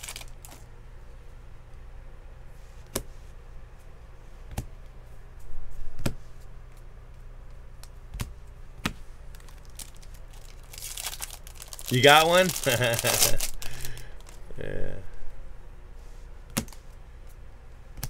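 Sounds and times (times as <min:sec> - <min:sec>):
cards rustling: 0:00.0 - 0:00.7, 0:08.8 - 0:14.5
steady low hum: 0:00.0 - 0:18.0.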